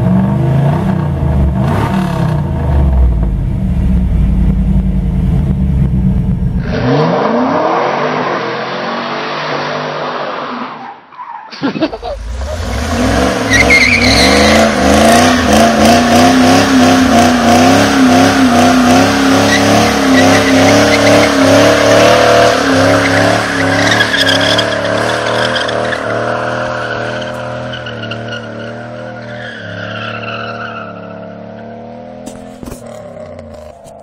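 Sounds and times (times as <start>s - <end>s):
car engine at high revs: 0.0s - 10.4s, 11.9s - 29.9s, 30.8s - 34.0s
tyres squealing: 12.4s - 15.6s, 19.3s - 31.2s.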